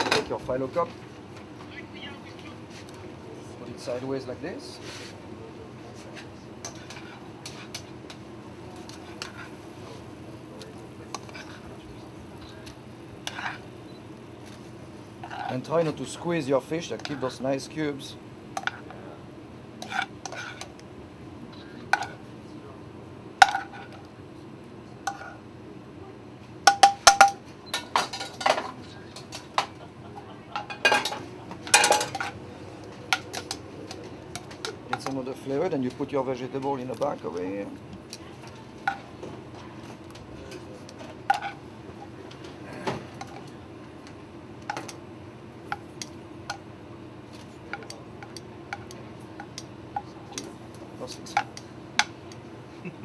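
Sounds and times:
low kitchen hum: 0.0 - 53.0
utensils scraping a skillet: 6.6 - 7.9, 8.8 - 10.0, 11.1 - 11.7, 13.2 - 13.7, 15.2 - 15.9, 19.8 - 20.7
spatula scraping frying pan: 13.2 - 13.7, 19.8 - 20.7
metal utensils clinking: 26.7 - 29.7, 30.6 - 32.4.

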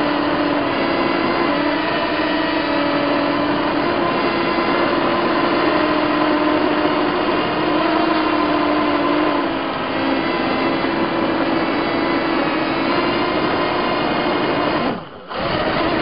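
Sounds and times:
quadcopter motors buzzing whine: 0.0 - 16.0.

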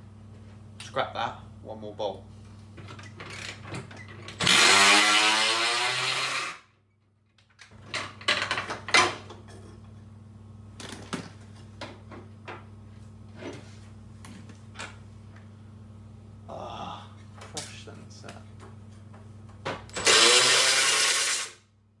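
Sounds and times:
steady low hum: 0.0 - 4.4, 6.8 - 20.0
power tool spinning up: 4.4 - 6.7, 19.9 - 21.6.

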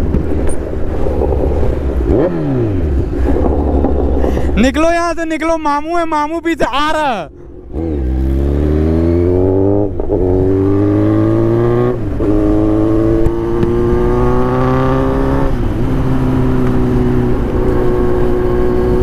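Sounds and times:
motorcycle engine revving: 0.0 - 4.6, 7.5 - 19.0
gear changes: 0.0 - 5.2
wind rush: 0.0 - 6.8.

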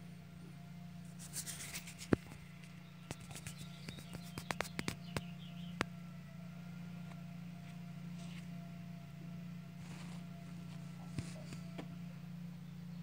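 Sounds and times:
low machinery hum: 0.0 - 13.0.

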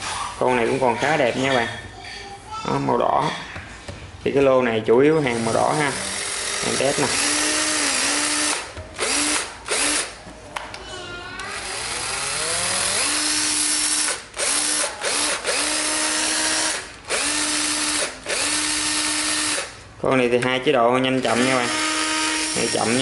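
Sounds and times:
cordless drill motor whining: 5.4 - 10.1, 11.4 - 19.7, 21.4 - 23.0.

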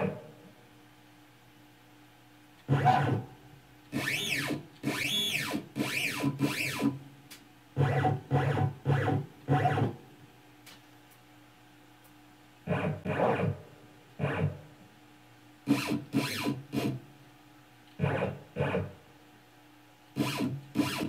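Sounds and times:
motor whine rising and falling: 4.0 - 6.9, 20.2 - 21.0.

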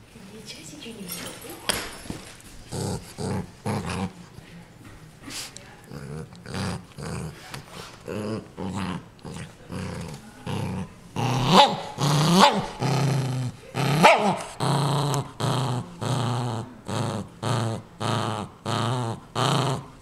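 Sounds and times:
dog snarling: 2.6 - 4.2, 5.8 - 20.0
small dog growling: 2.6 - 4.2, 5.8 - 20.0.

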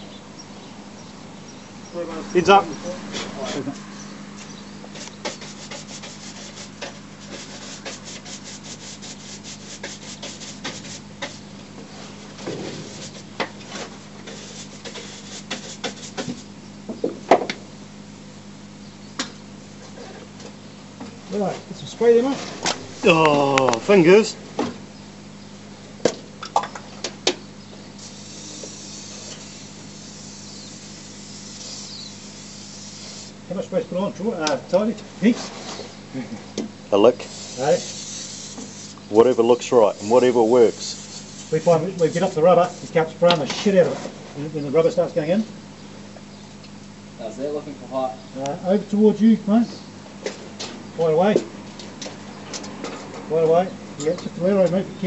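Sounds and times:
machinery hum: 0.0 - 55.0
rubbing and scraping ticks: 4.9 - 11.4, 12.8 - 16.5
aerosol spray hissing: 28.0 - 33.4, 37.3 - 39.0, 40.0 - 42.8.

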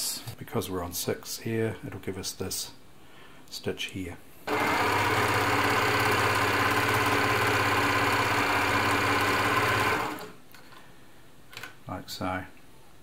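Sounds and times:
sewing machine running: 4.5 - 10.4.

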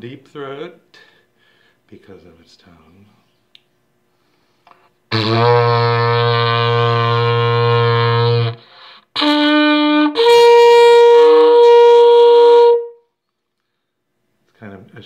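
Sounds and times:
ceramic horn blowing low and high notes: 4.7 - 13.0.

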